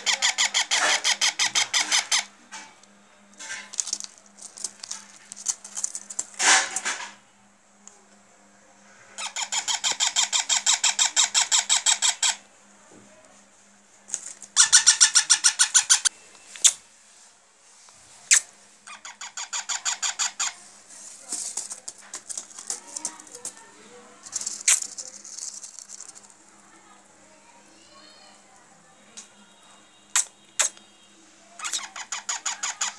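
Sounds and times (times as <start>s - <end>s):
baby parakeets chirping: 0.0s - 2.3s, 9.2s - 12.4s, 14.6s - 16.1s, 18.9s - 20.6s, 31.6s - 32.9s.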